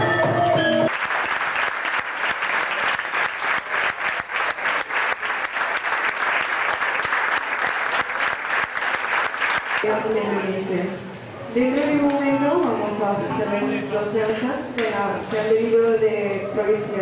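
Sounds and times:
audience applauding: 0.9s - 9.9s.

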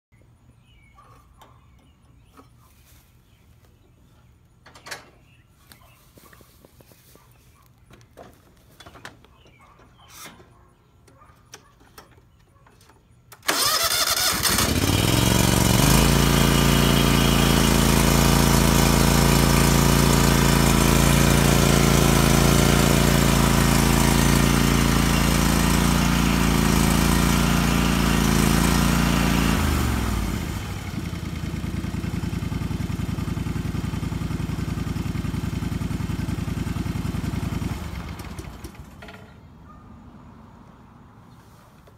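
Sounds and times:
lawn tractor engine running: 11.0s - 39.5s.

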